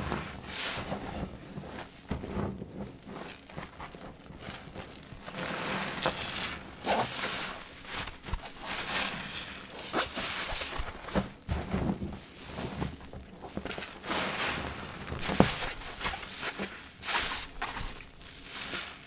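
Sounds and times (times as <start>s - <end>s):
sponge squelching in soapy water: 0.0s - 19.0s.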